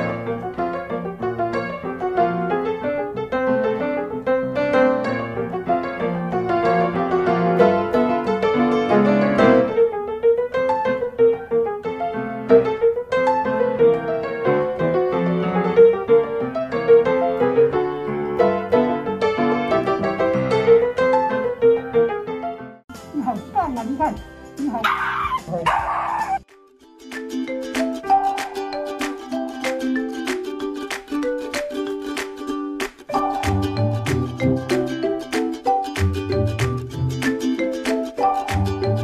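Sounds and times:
gentle piano music: 0.0 - 39.0.

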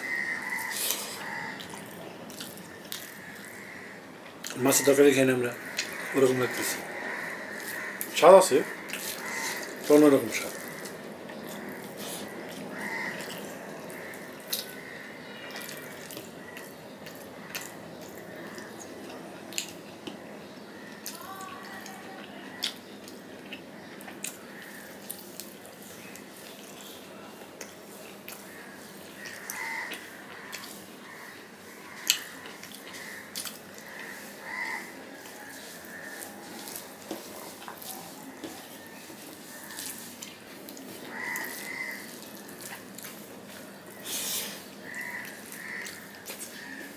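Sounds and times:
wet chewing: 0.1 - 4.7, 5.6 - 46.9
fingers squishing food on plate: 31.9 - 46.9.

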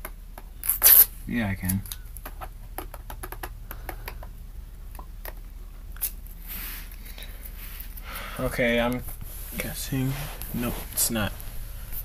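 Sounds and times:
hands tapping laptop: 2.2 - 4.4.

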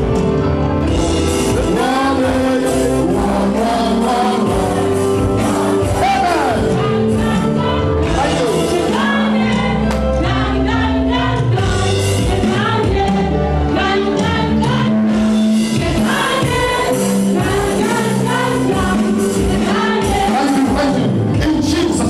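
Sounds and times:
congregation singing: 0.0 - 22.0
instrumental backing with beat: 0.0 - 22.0.

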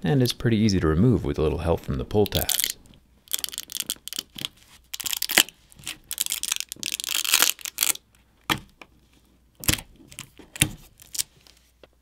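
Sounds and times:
adhesive tearing and crackling: 2.2 - 8.7, 9.6 - 11.5.

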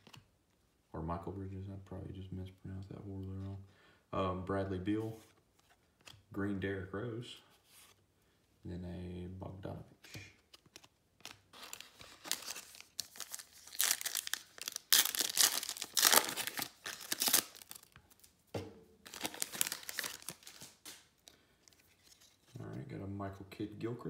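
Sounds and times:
foil wrapper crinkling and tearing: 11.2 - 18.3, 19.0 - 21.1.

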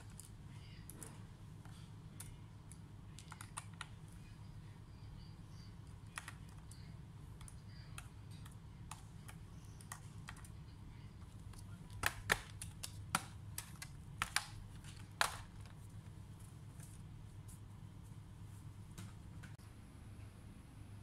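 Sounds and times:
plastic clips snapping: 11.5 - 15.7.

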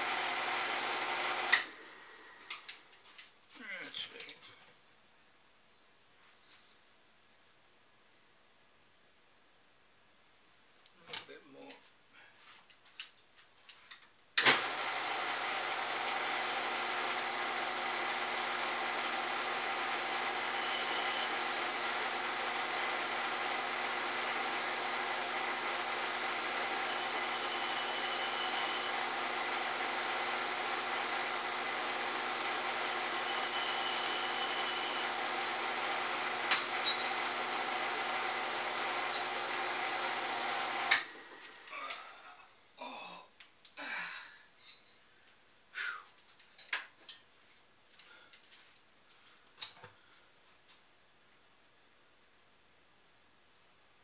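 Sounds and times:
power tool motor running: 0.0 - 2.4, 14.6 - 41.8.

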